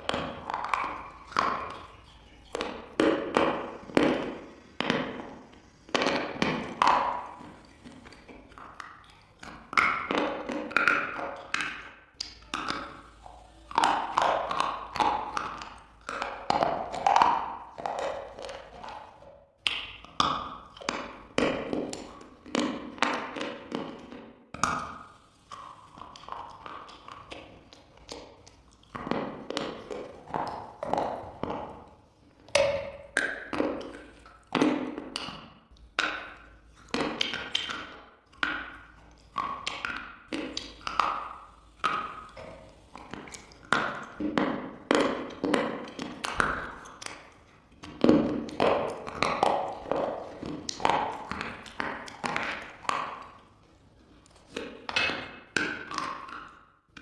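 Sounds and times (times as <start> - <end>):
crunchy food chewing: 0.0 - 19.3.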